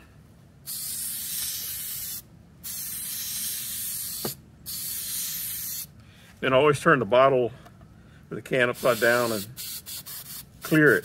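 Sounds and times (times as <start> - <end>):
aerosol can spraying: 0.6 - 5.9, 8.8 - 11.0.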